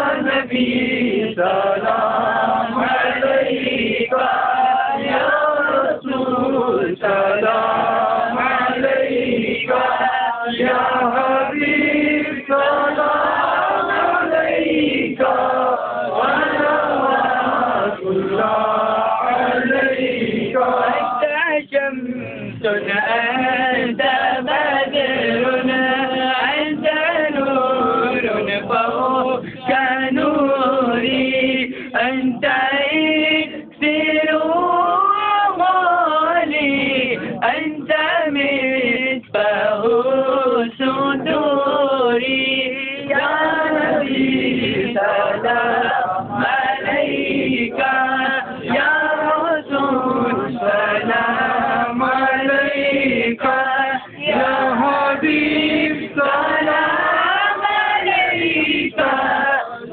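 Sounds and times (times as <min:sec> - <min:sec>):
men chanting together: 0:00.0 - 0:21.8, 0:22.5 - 0:59.9.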